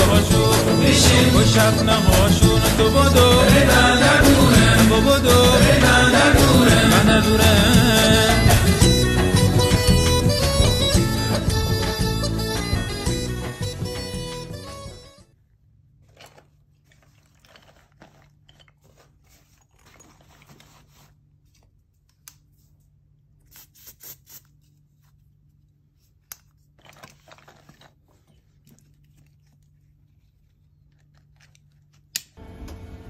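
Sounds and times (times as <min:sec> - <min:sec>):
clothes rustling: 0:16.0 - 0:21.8.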